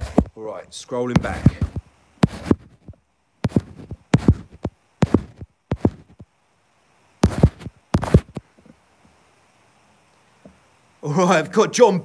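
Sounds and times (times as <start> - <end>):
phone handling thumps: 1.2 - 2.9.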